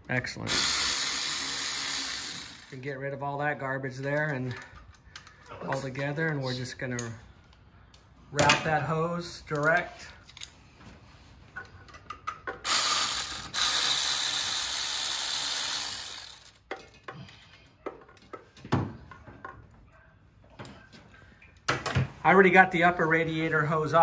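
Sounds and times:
tools clicking and tapping: 4.0 - 5.5, 11.6 - 13.1, 16.4 - 19.7
socket ratchet ratcheting: 12.3 - 16.7.

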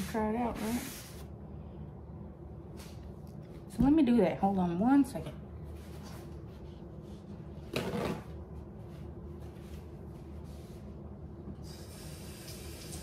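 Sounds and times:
low room hum: 0.0 - 13.0
kitchen faucet running: 11.6 - 13.0.

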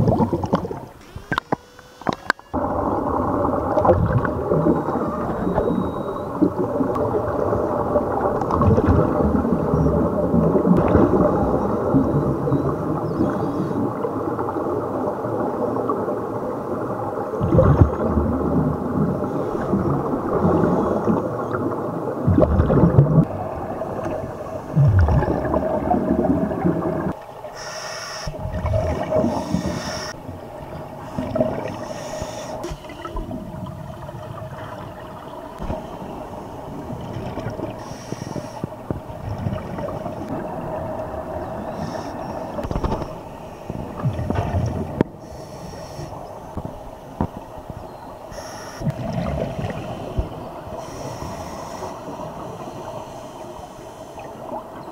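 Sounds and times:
exhaled bubbles underwater: 0.0 - 54.9
regulator hissing inhalations: 27.6 - 28.3, 29.2 - 30.2, 31.6 - 33.0, 37.8 - 38.7, 41.7 - 42.6, 45.2 - 46.2, 48.3 - 48.8, 49.8 - 54.4.

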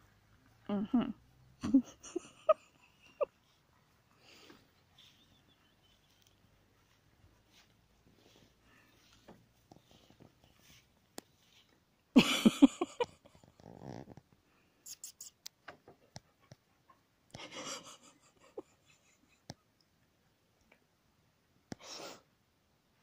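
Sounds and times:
rustles: 0.0 - 20.9
soft breaths: 2.6 - 12.1, 21.7 - 22.4.

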